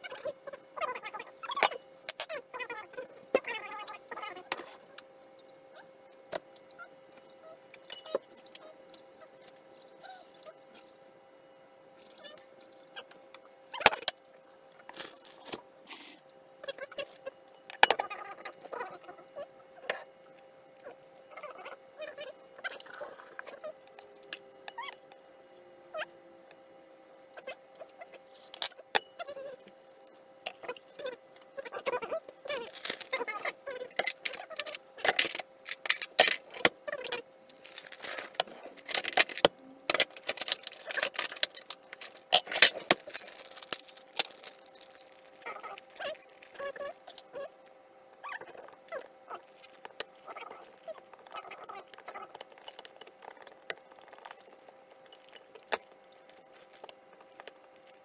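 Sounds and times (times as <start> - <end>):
faint hum: 0.0 - 58.0
crinkling bags: 14.9 - 15.6, 32.6 - 33.2, 37.5 - 47.2, 54.1 - 58.0
utensil scraping glass bowl: 48.5 - 58.0.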